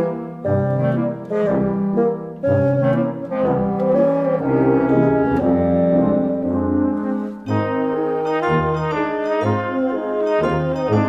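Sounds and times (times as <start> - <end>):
slow brass chords: 0.0 - 11.0.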